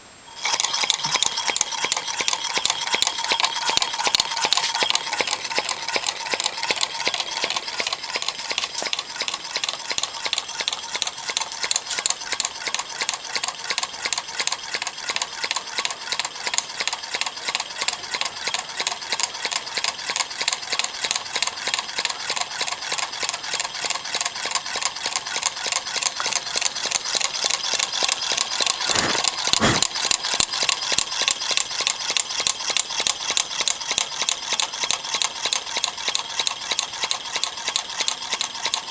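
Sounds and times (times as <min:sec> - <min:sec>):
small engine linkage clicking: 0:00.4 - 0:38.9.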